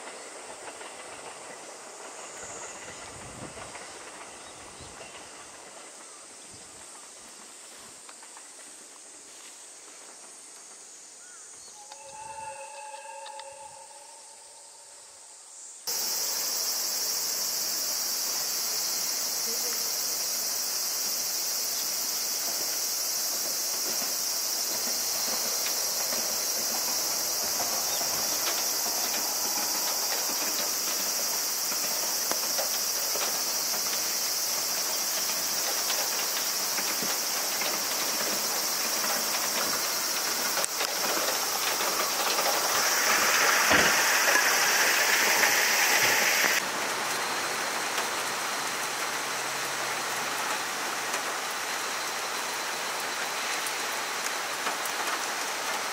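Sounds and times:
broad hiss: 0.0 - 12.2, 13.6 - 55.9
insects shrilling: 11.2 - 46.6.

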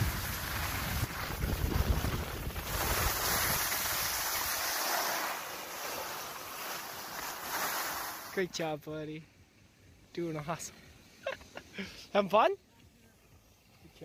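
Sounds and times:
wind buffeting microphone: 0.0 - 4.3
skis sliding on snow: 0.0 - 8.7.

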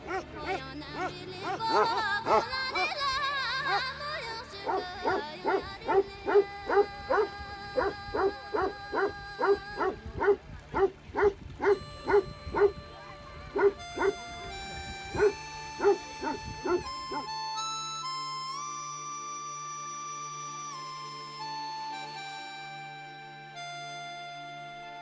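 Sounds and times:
dog barking: 0.0 - 2.9, 4.7 - 12.7, 13.6 - 14.2, 15.2 - 17.3
background music with held notes: 0.0 - 25.0.

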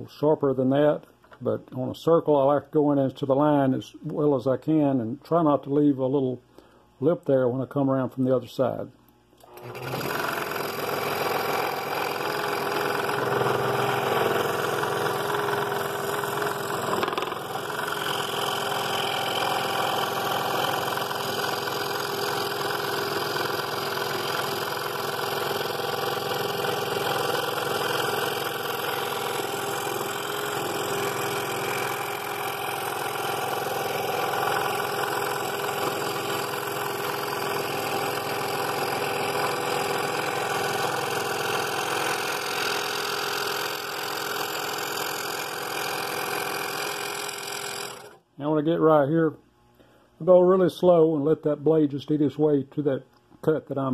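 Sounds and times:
scroll saw cutting wood: 9.4 - 48.2.

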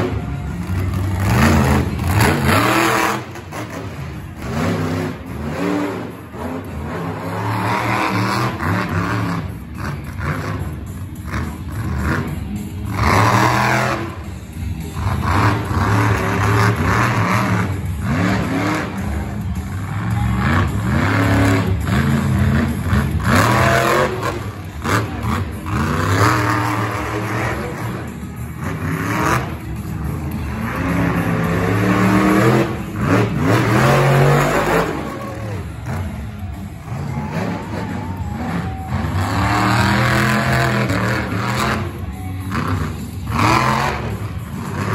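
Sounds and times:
monster truck engine revving: 0.0 - 44.9.

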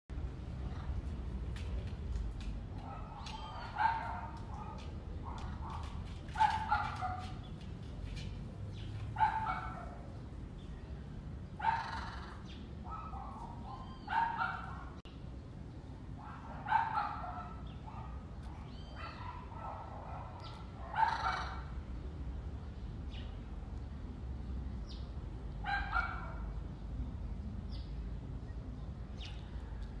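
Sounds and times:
animal harsh calls: 11.7 - 12.4.

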